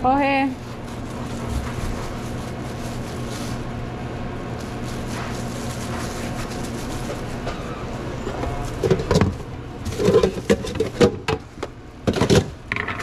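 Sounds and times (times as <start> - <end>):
containers clicking and knocking: 8.8 - 11.4, 12.0 - 13.0.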